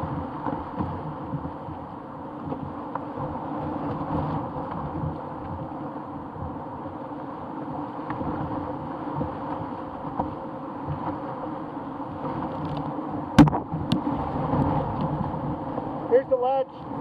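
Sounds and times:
knocks on canoe: 0:12.2 - 0:15.2.

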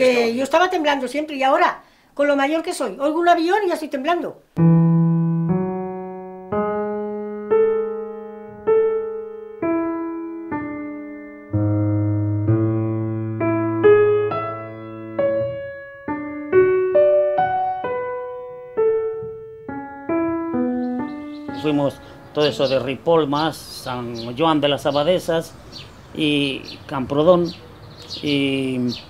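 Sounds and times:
slow solo piano: 0:04.6 - 0:22.9.

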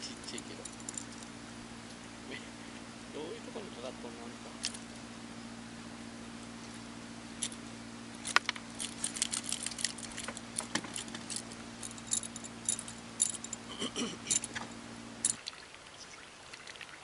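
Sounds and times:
steady low hum: 0:00.0 - 0:17.0
metallic jingling: 0:00.1 - 0:01.3, 0:08.2 - 0:15.4
sharp clicks: 0:08.2 - 0:11.4.

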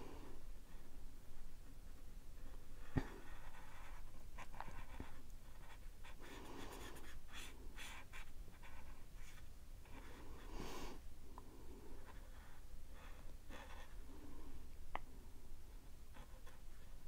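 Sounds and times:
marker scratching on paper: 0:02.4 - 0:10.2, 0:12.0 - 0:13.9.

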